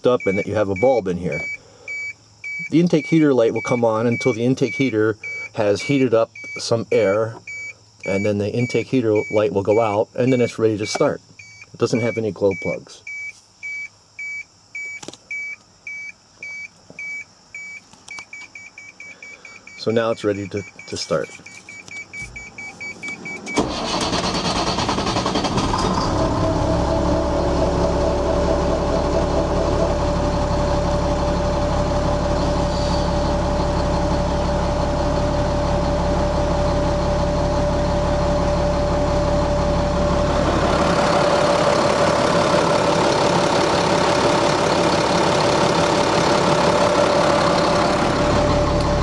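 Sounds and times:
diesel engine starting and idling: 0:00.0 - 0:12.6, 0:22.4 - 0:49.0
steady engine whine: 0:19.7 - 0:49.0.

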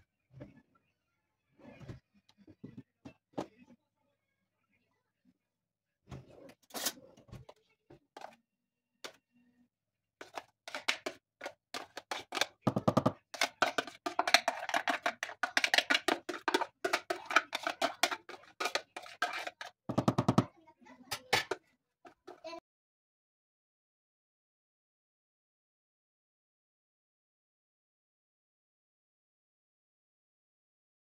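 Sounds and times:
glass bowl tapped and scraped: 0:10.2 - 0:20.5.

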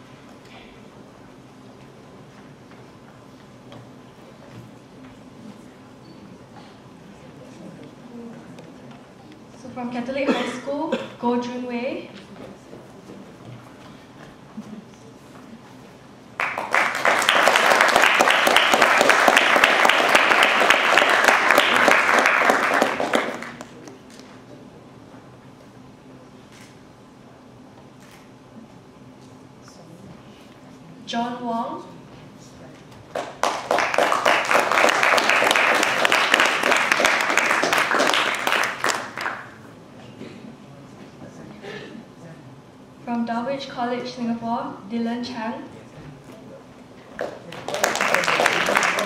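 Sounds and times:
audience applauding: 0:16.4 - 0:23.9, 0:33.1 - 0:39.6, 0:47.2 - 0:49.0.

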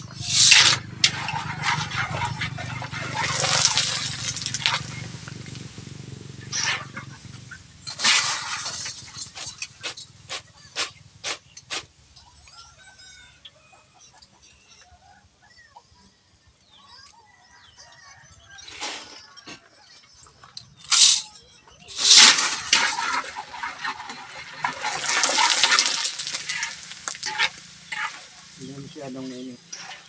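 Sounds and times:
metal spatula scraping wok: 0:00.0 - 0:05.2, 0:06.5 - 0:07.1, 0:07.8 - 0:10.2, 0:21.9 - 0:30.0.

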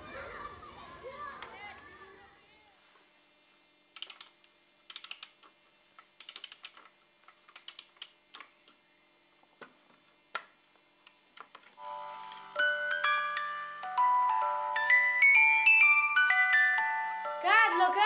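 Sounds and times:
music box winding clicks: 0:06.2 - 0:06.9, 0:12.1 - 0:13.2, 0:14.0 - 0:15.0.

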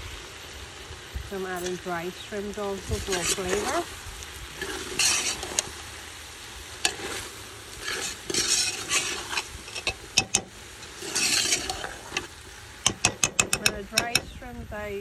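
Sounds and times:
spoon scraping metal pot: 0:04.6 - 0:05.7, 0:06.8 - 0:12.3.

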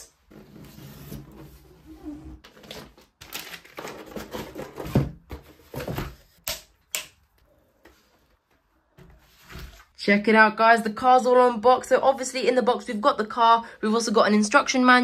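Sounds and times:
cardboard and plastic rustling: 0:02.4 - 0:06.4.

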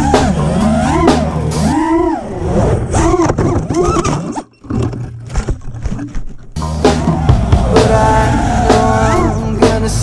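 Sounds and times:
drone propellers whining: 0:00.0 - 0:04.2, 0:06.6 - 0:09.8.

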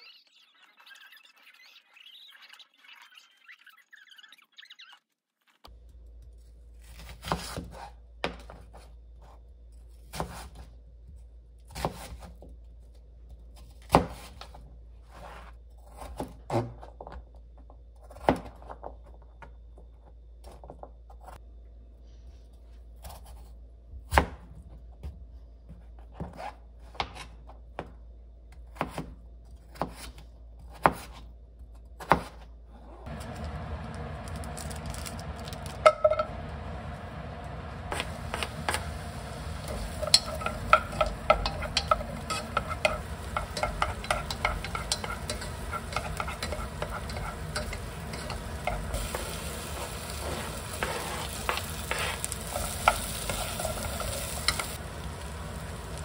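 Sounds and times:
low steady hum: 0:32.6 - 0:56.0.

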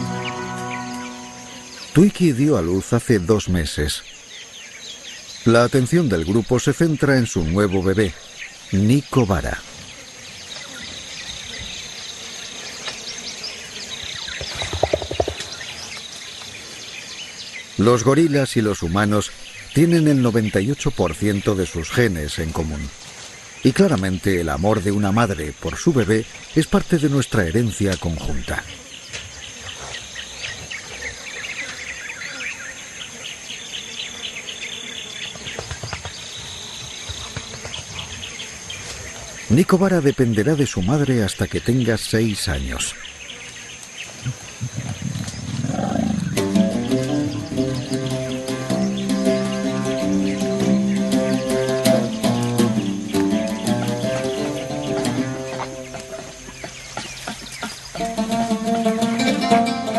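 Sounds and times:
high-pitched insect drone: 0:00.0 - 0:02.4, 0:10.7 - 0:16.0, 0:44.1 - 0:59.9
birds chirping: 0:00.0 - 0:59.9
high insect drone: 0:00.0 - 0:59.9.

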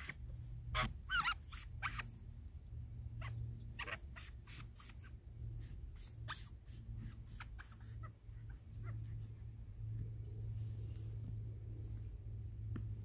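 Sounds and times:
knife cutting squeaky fungus: 0:00.0 - 0:02.1, 0:03.2 - 0:09.2.

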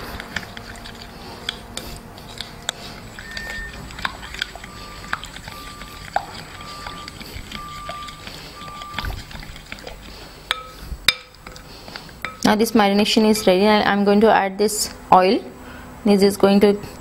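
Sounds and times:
spoon stirring thick yogurt: 0:00.0 - 0:13.7
spoon tapping glass bowl: 0:07.8 - 0:08.2, 0:10.5 - 0:11.6, 0:12.2 - 0:12.5.

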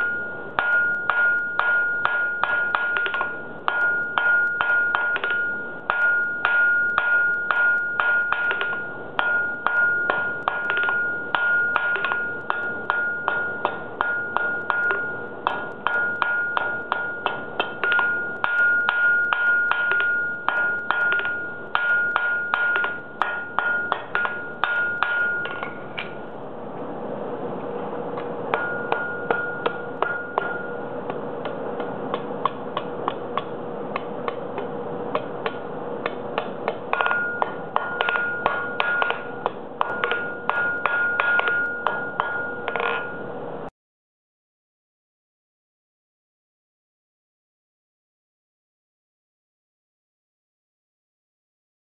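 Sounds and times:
hammer blows ringing on anvil: 0:00.0 - 0:26.2, 0:28.2 - 0:43.4
steady hum and hiss: 0:00.0 - 0:43.7
light ringing taps: 0:33.4 - 0:43.2.

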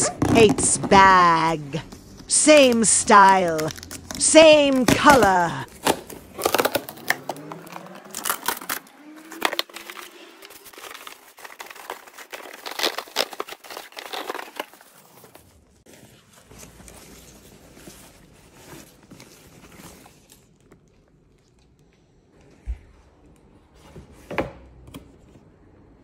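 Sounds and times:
paper and card crinkling: 0:00.0 - 0:21.6
fabric bag rustling: 0:05.7 - 0:20.5.

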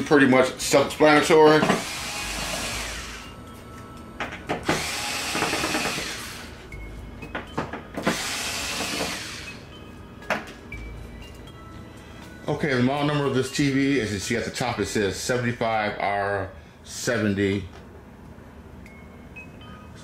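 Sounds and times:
electric screwdriver running: 0:01.8 - 0:03.3, 0:04.6 - 0:06.6, 0:08.0 - 0:09.6.

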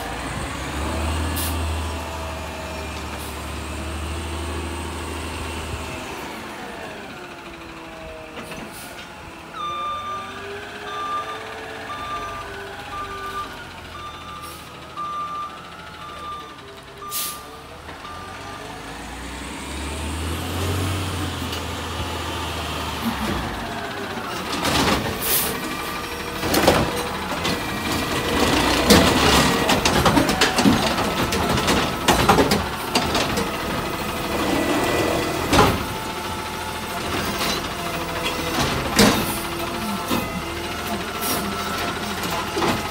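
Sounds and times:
garbage truck engine running: 0:00.0 - 0:42.9
reversing alarm beeps: 0:09.5 - 0:18.6
air brake hisses: 0:17.1 - 0:17.5.

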